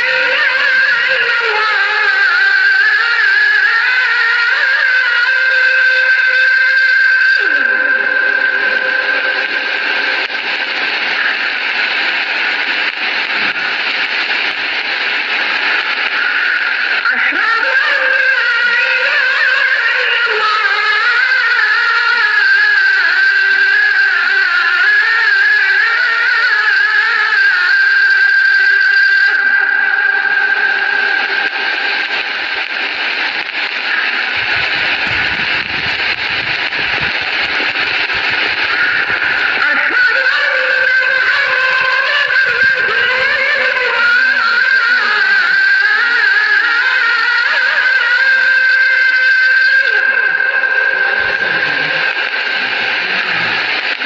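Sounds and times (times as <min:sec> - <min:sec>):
old recording hiss and crackle: 0:00.0 - 0:54.0
person chanting held note: 0:05.3 - 0:10.6, 0:39.6 - 0:54.0.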